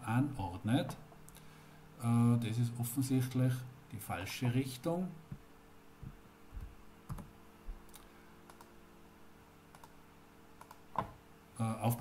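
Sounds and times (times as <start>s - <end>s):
low steady hum: 0.0s - 12.0s
keyboard and mouse clicks: 6.6s - 7.3s, 7.9s - 8.7s, 9.7s - 10.0s, 10.6s - 11.2s.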